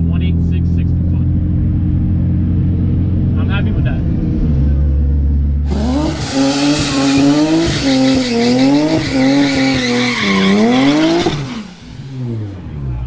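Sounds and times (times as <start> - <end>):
car engine revving: 0.0 - 13.0
spinning tyres hissing: 5.7 - 12.8.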